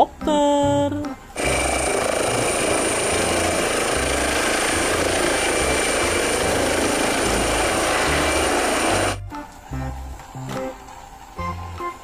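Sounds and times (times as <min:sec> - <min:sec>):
helicopter rotor and turbine: 0:01.4 - 0:09.2
high turbine whine: 0:01.4 - 0:09.2.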